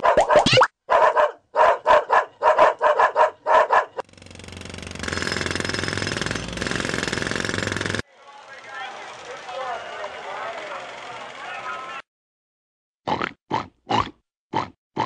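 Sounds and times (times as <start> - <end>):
dog barking rapidly: 0.0 - 4.0.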